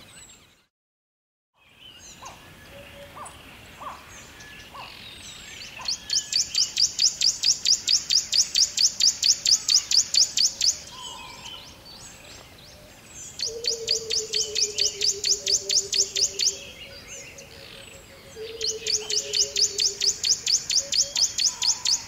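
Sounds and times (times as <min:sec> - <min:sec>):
soft scattered bird calls: 0:00.0 - 0:00.7, 0:01.6 - 0:22.0
bird singing fast high chirps: 0:05.6 - 0:11.1, 0:13.3 - 0:17.2, 0:18.4 - 0:22.0.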